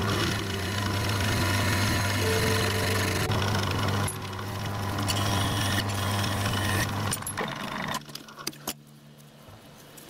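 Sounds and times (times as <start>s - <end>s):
metal lathe humming: 0.0s - 8.0s.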